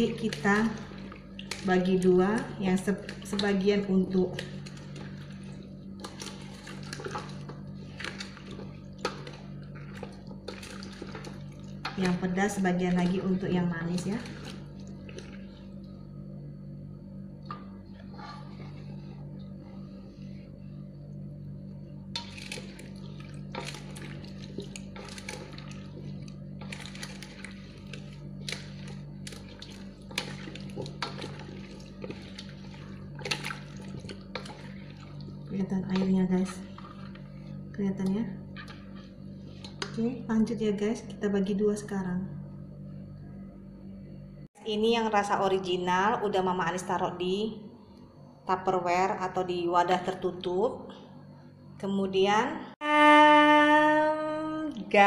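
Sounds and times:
spatula stirring in a steel bowl: 0.0 - 16.0, 17.5 - 20.6, 22.2 - 40.2
steady low hum: 0.0 - 55.0.

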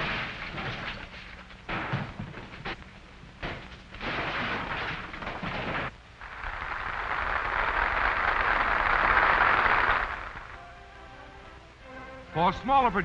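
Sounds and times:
crowd noise: 6.2 - 10.7
audience applauding: 6.2 - 10.8.

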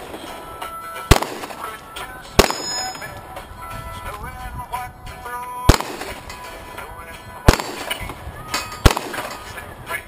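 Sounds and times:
background music: 0.0 - 10.0
handgun shots: 1.1 - 1.7, 2.4 - 3.1, 5.7 - 6.4, 7.5 - 9.5.

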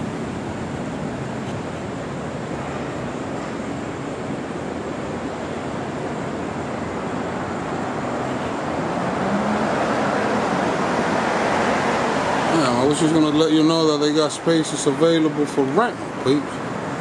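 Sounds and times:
city street traffic: 0.0 - 17.0
vehicle approaching: 7.6 - 17.0.

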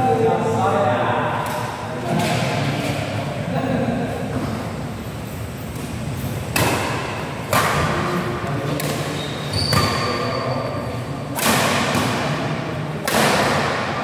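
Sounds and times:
racket hitting shuttlecock: 5.7 - 10.1, 11.3 - 14.0
short high squeak: 9.2 - 10.7.

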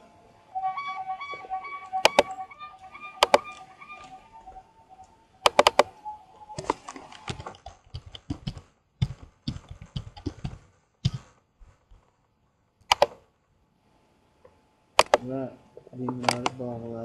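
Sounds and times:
faint melody of held notes: 0.0 - 7.3
computer keyboard typing: 2.0 - 2.4, 3.2 - 3.6, 5.4 - 5.9, 6.6 - 11.3
quick clicks: 2.0 - 2.4, 3.2 - 4.2, 5.4 - 6.0, 12.8 - 13.2, 15.0 - 15.3, 16.2 - 16.6.

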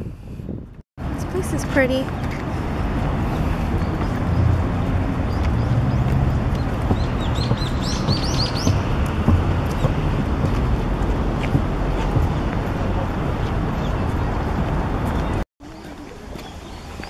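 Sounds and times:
steady low rumble: 2.3 - 15.4
bird chirping: 3.7 - 9.0.

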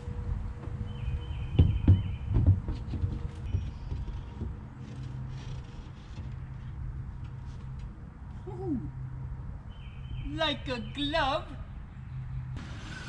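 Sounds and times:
dull knocks and thumps: 1.5 - 6.7.

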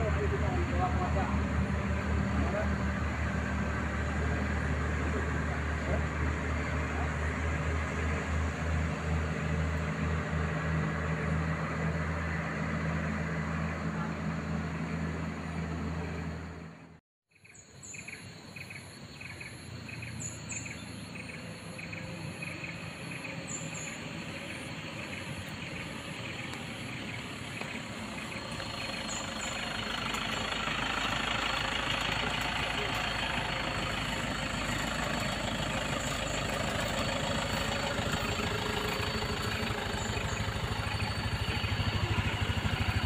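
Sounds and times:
truck diesel engine running: 0.0 - 17.0, 21.2 - 43.0
truck engine idling: 0.0 - 17.0, 20.6 - 43.0
bird chirps: 17.3 - 30.6, 34.0 - 43.0.

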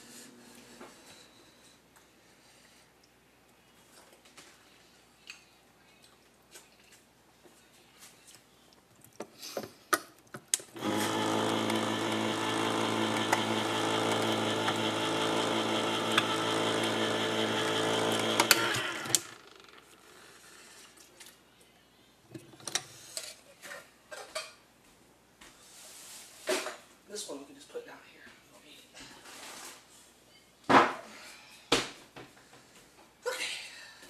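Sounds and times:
can opener motor running: 10.8 - 20.0.

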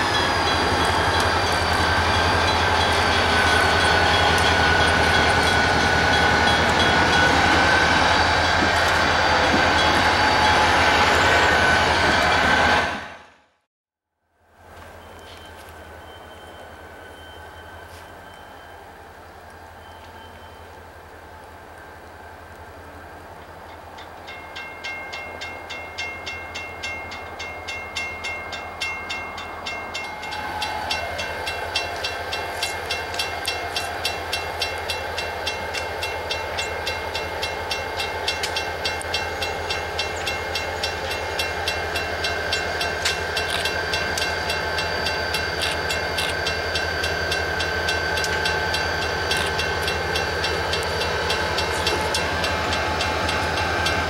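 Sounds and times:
crossing warning bell ringing: 0.0 - 12.8, 23.7 - 54.0
diesel locomotive approaching: 0.0 - 13.7, 14.3 - 54.0.

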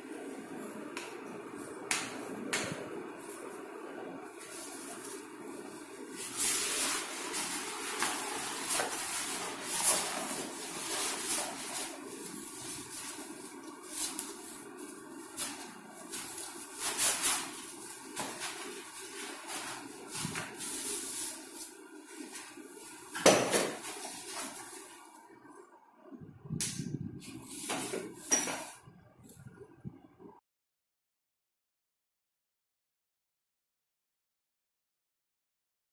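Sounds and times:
cloth rustling and sliding: 3.0 - 25.2.

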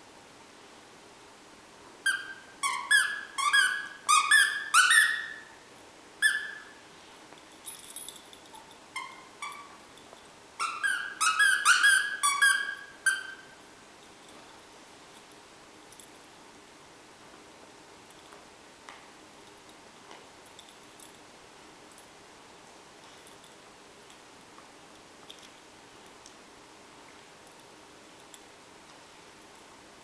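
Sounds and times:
squeaky dog toy squeaks: 2.0 - 5.5, 6.2 - 6.8, 8.9 - 9.8, 10.6 - 13.6.

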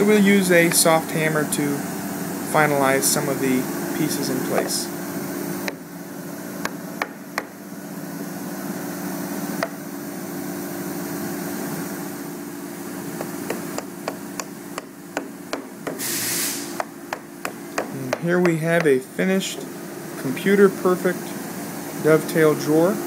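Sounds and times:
steady hum: 0.0 - 23.0
mallet tapping wooden joints: 0.6 - 0.9, 13.2 - 16.0, 16.8 - 19.7.

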